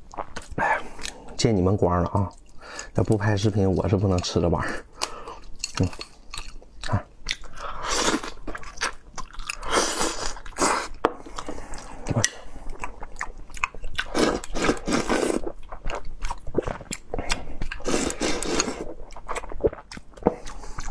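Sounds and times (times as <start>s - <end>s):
person chewing food: 0.0s - 1.4s, 2.1s - 20.9s.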